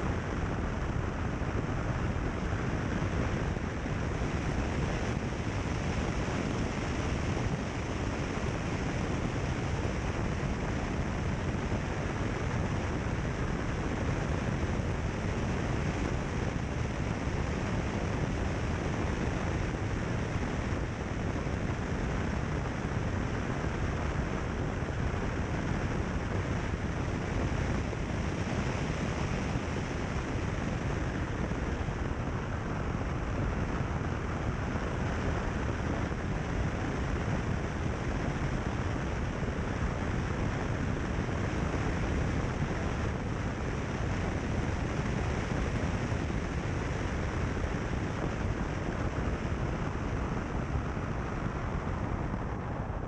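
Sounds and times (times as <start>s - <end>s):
wind rushing over microphone: 0.0s - 53.0s.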